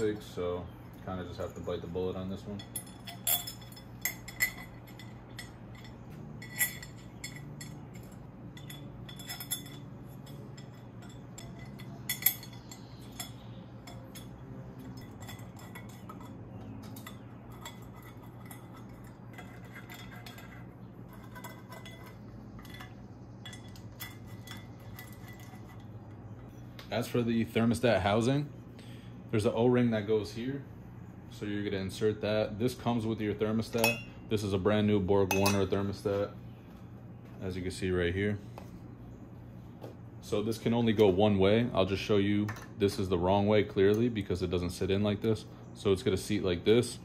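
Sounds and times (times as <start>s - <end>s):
metal hardware clinking: 1.3s - 26.2s, 33.6s - 34.2s, 35.2s - 36.3s.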